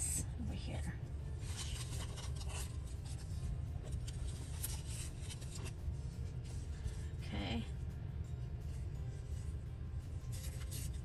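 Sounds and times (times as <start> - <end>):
steady low hum: 0.0 - 11.0
paper rustling on a surface: 1.4 - 5.8, 10.2 - 11.0.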